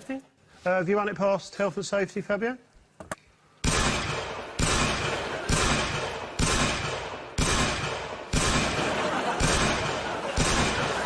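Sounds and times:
pistol shots: 0:03.6 - 0:11.0.

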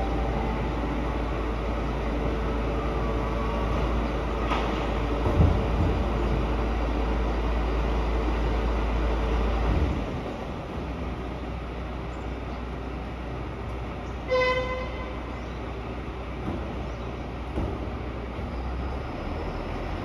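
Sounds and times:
truck diesel engine rumbling: 0:00.0 - 0:20.0
short horn toot: 0:14.3 - 0:15.2.

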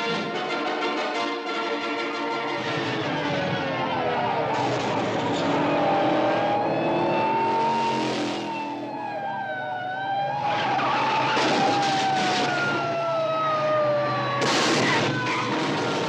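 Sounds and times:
road and engine noise: 0:00.0 - 0:16.0
tyres squealing in a skid: 0:02.5 - 0:08.7, 0:10.4 - 0:12.9, 0:14.1 - 0:16.0.

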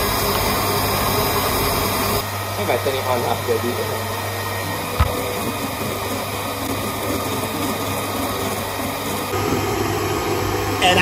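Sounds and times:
mixer motor hum: 0:03.7 - 0:10.8
stand mixer whisk beating eggs: 0:04.8 - 0:10.8
sharp knock: 0:05.0 - 0:05.2.

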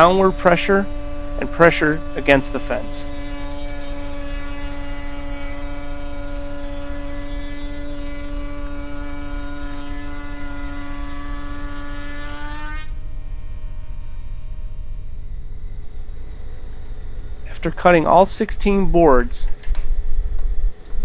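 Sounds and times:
router cutting wood: 0:00.0 - 0:19.4
low rumble: 0:14.8 - 0:21.0.

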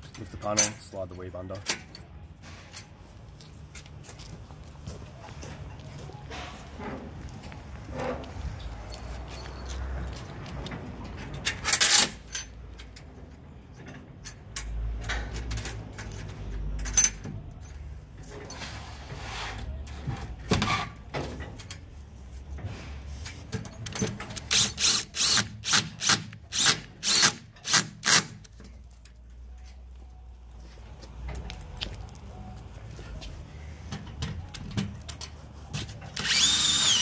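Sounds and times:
cordless drill bursts: 0:24.5 - 0:28.3, 0:36.2 - 0:37.0.

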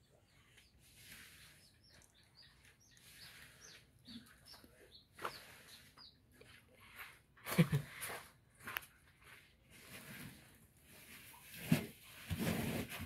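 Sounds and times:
small birds chirping: 0:00.0 - 0:08.0.

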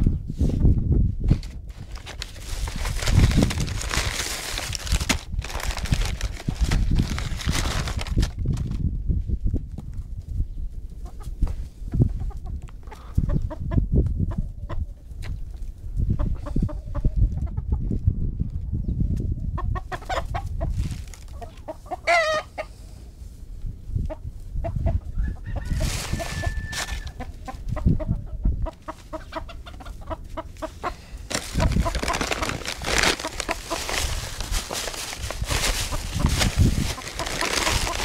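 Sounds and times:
chickens clucking: 0:10.9 - 0:18.0, 0:19.4 - 0:22.8, 0:24.0 - 0:38.0
loud rustling: 0:31.3 - 0:38.0.

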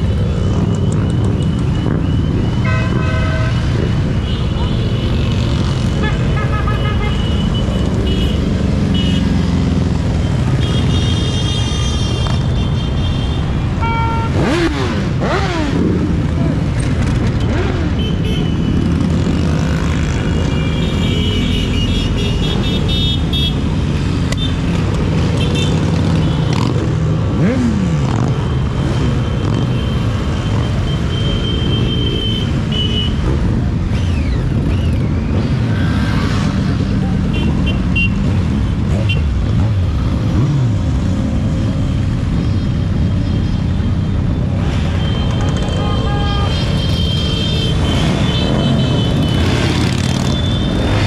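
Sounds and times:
motorcycle engines rumbling past: 0:00.0 - 0:10.9, 0:13.4 - 0:51.0
motorcycle horns tooting: 0:01.9 - 0:09.4, 0:10.2 - 0:15.7, 0:17.5 - 0:19.4, 0:20.0 - 0:33.6, 0:37.2 - 0:39.6, 0:44.6 - 0:51.0.

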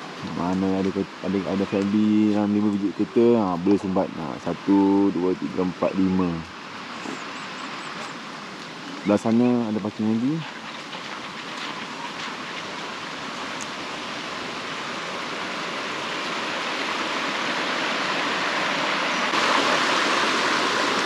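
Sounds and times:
rain falling: 0:00.0 - 0:21.0
river flowing: 0:00.0 - 0:21.0.

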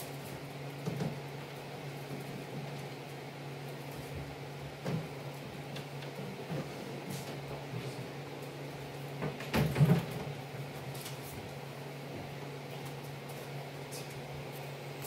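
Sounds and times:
dehydrator fan humming: 0:00.0 - 0:15.0.

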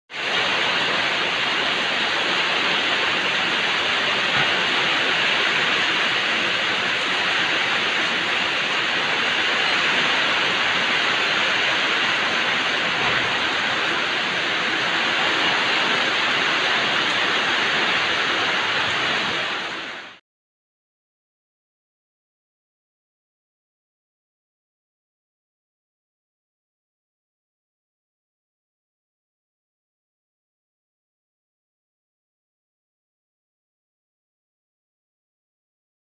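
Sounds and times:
heavy rain falling: 0:00.1 - 0:20.2.

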